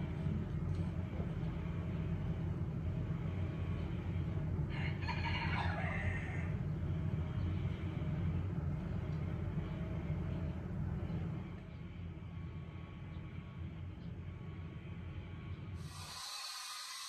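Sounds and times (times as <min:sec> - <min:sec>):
steady low rumble: 0:00.0 - 0:05.2, 0:05.8 - 0:16.3
rooster crowing: 0:04.7 - 0:06.5.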